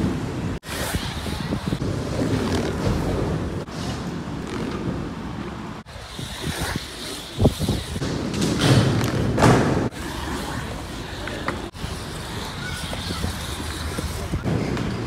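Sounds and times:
skateboard wheels rolling: 0.0s - 15.0s
skateboard thumps: 8.0s - 9.9s.

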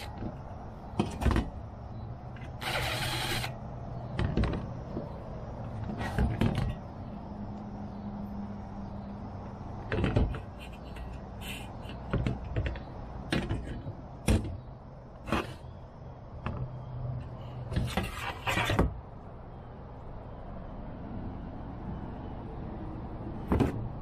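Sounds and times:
plastic panel clicks and knocks: 4.1s - 6.8s, 9.8s - 10.6s, 11.9s - 14.6s.

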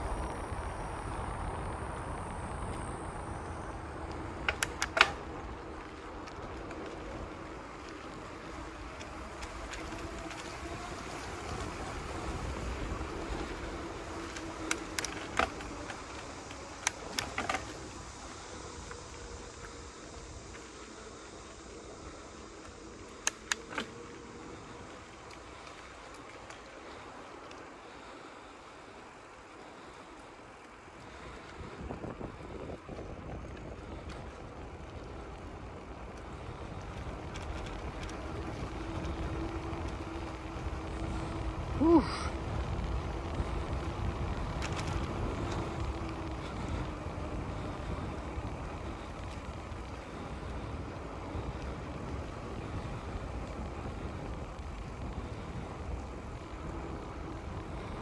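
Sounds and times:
wind noise: 0.0s - 27.0s, 31.0s - 58.0s
bicycle tyres on concrete: 0.0s - 58.0s
faint hum: 0.0s - 58.0s
sharp clicks and rattles: 4.0s - 18.0s, 22.6s - 26.6s.

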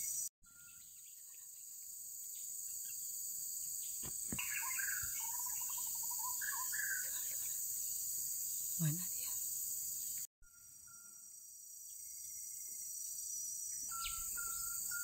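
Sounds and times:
bird warbling: 4.4s - 7.6s.

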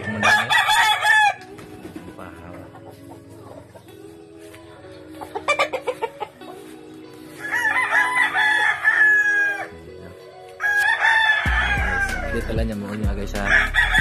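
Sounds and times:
rooster crowing: 0.0s - 1.4s, 7.4s - 9.8s, 10.6s - 12.4s, 13.5s - 14.0s
loud clucks: 5.2s - 6.6s.

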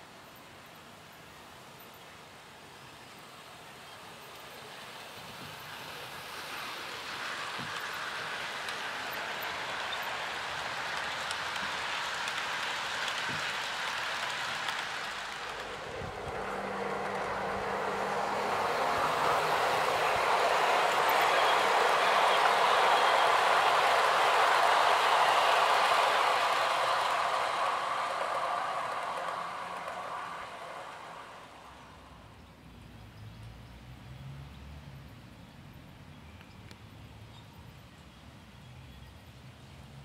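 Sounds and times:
model train wheels rattling: 4.2s - 31.9s.

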